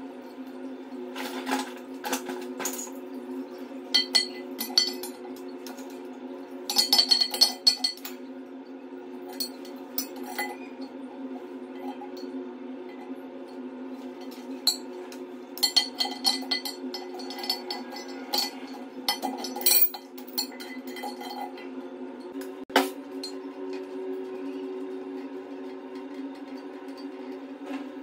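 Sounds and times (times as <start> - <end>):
metal tools clinking: 3.9 - 5.2, 6.7 - 8.2, 9.3 - 10.7, 15.6 - 21.6.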